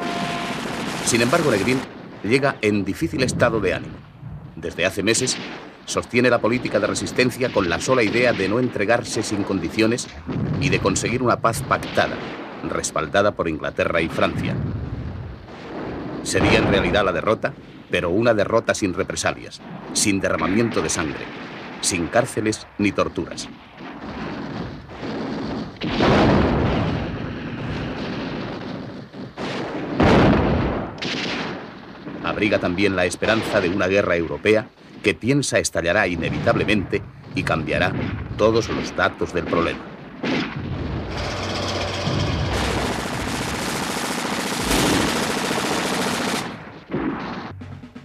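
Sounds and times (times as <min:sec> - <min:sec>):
artillery booms: 0:00.0 - 0:17.5, 0:23.2 - 0:35.1, 0:36.2 - 0:48.0
machine-gun fire: 0:40.2 - 0:48.0.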